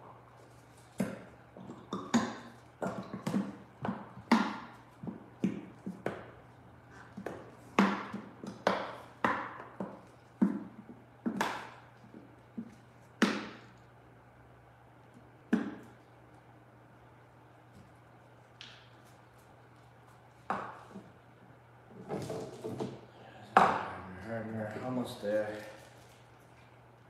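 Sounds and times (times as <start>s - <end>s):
plastic containers tapping together: 7.1s - 13.7s.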